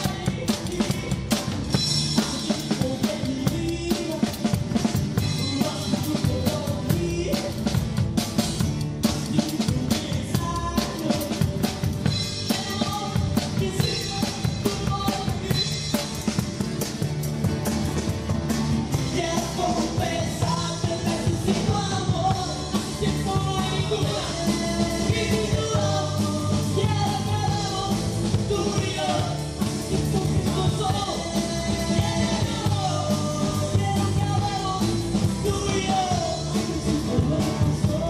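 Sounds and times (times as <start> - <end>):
busy drum kit: 0.0 - 38.0
live band instrumental: 0.0 - 38.0.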